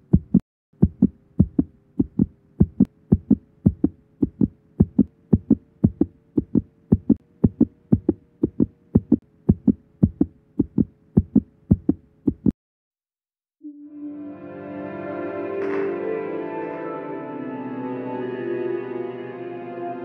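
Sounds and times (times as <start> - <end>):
faint steady hum: 0.0 - 12.5
heartbeat thumps: 0.0 - 12.6.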